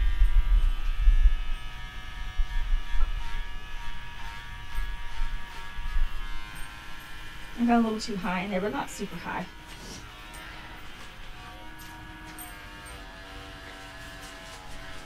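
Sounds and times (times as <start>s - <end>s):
low rumble: 0.0s - 3.0s
electric clippers buzzing: 0.0s - 15.0s.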